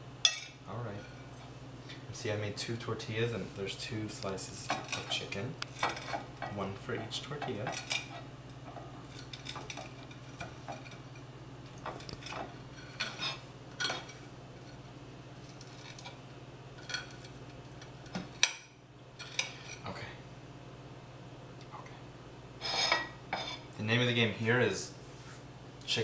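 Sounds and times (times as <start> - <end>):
steady low hum: 0.0 - 26.0
knife scraping on ceramic plate: 22.6 - 23.7.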